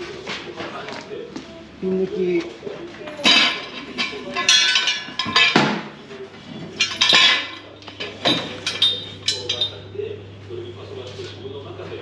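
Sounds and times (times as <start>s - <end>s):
metal tools clanking: 3.1s - 9.9s.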